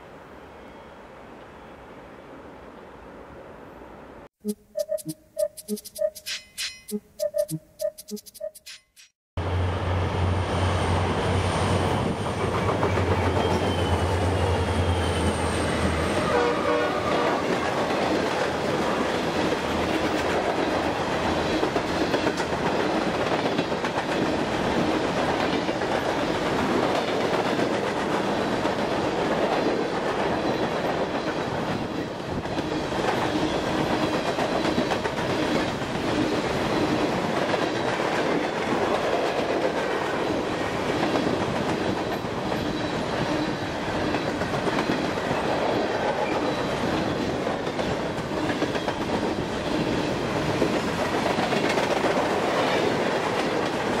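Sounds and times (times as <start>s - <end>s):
diesel locomotive engine drone: 9.4s - 17.0s.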